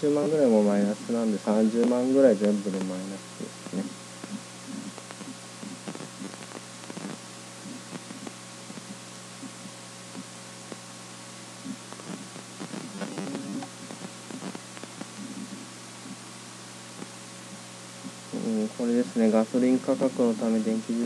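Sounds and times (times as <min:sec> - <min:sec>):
electrical hum with hiss: 0:00.0 - 0:21.0
soft low sounds: 0:11.5 - 0:20.7.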